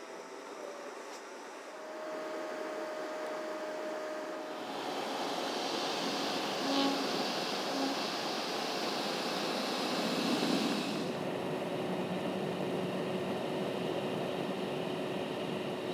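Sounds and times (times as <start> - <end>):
faint steady hum: 0.0 - 15.9
road and wind noise in truck cab: 4.6 - 15.9.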